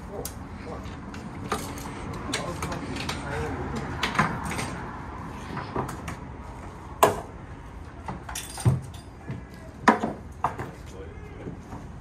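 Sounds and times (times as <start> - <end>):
metallic jingle: 8.3 - 9.2.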